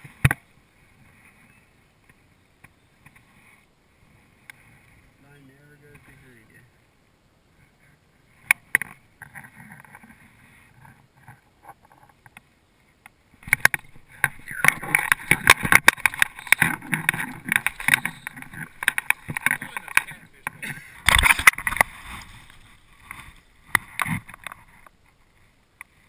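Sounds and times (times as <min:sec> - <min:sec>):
water splashing: 0:13.4 - 0:24.8.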